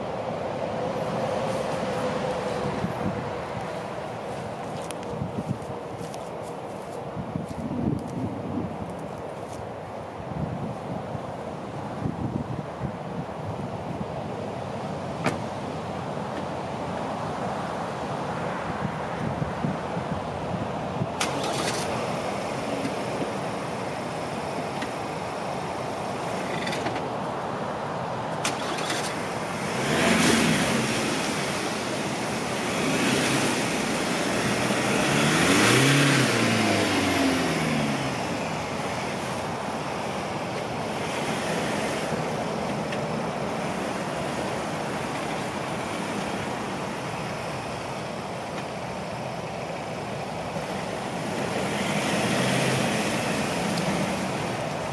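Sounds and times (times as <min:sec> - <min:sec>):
truck engine revving: 0:21.2 - 0:23.5, 0:28.4 - 0:48.9, 0:50.1 - 0:54.9
wheels spinning in mud: 0:21.2 - 0:25.1.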